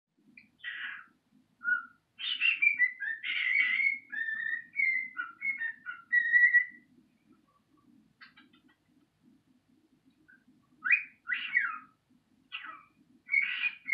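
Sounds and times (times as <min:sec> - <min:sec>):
cockatiel whistling and chattering: 0:00.4 - 0:06.9, 0:10.3 - 0:13.9.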